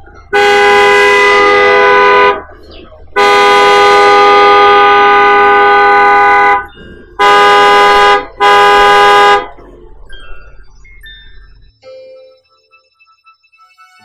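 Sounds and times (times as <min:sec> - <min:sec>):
car horn honking: 0:00.3 - 0:02.5, 0:03.2 - 0:09.6.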